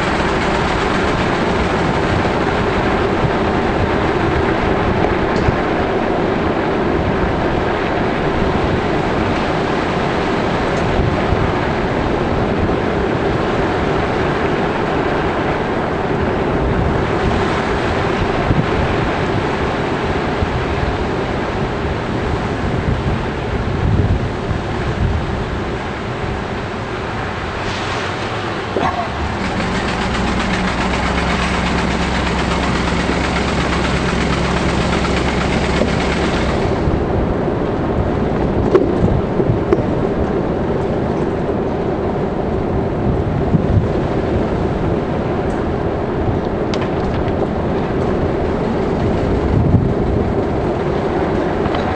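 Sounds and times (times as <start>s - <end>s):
road hiss: 0.0s - 3.3s, 24.6s - 37.3s
vehicle interior road noise: 0.0s - 51.9s.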